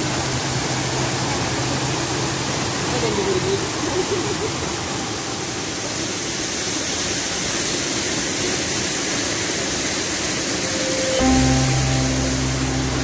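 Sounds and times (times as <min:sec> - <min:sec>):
waterfall rushing: 0:00.0 - 0:13.0
music with sustained notes: 0:10.5 - 0:13.0.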